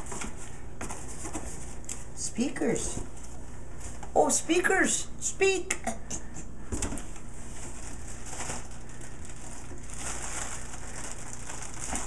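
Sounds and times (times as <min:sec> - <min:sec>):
packing material rustling: 0:07.0 - 0:12.0.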